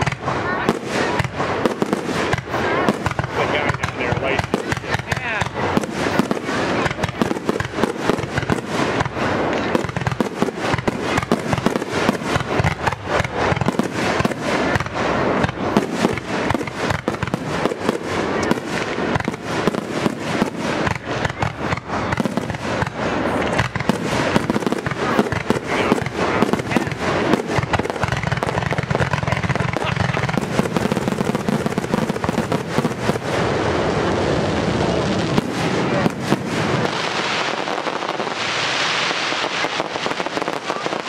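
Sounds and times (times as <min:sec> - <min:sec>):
fireworks bursting in rapid barrage: 0:00.0 - 0:41.0.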